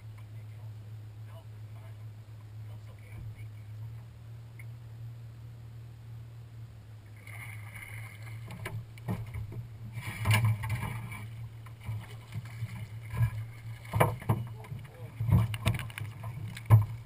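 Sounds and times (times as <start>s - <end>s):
steady low hum: 0.0s - 17.0s
fish thrashing and splashing: 10.0s - 17.0s.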